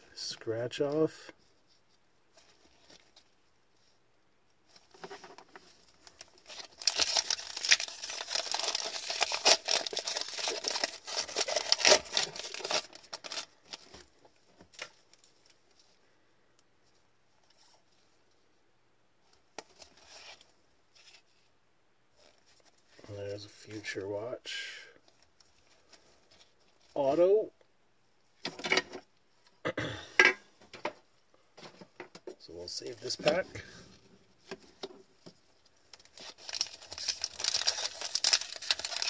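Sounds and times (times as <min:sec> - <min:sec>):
cards rustling: 0:04.7 - 0:15.6, 0:34.4 - 0:39.0
wrapper tearing and crinkling: 0:06.0 - 0:14.0, 0:35.9 - 0:39.0.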